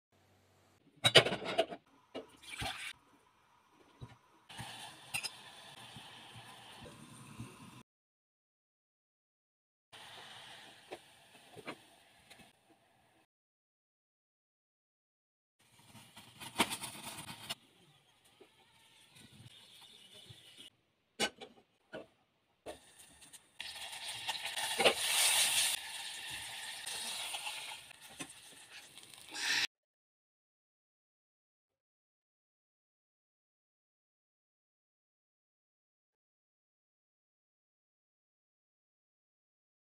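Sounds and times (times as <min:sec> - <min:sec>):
oil sizzling and spattering: 0:22.8 - 0:29.6.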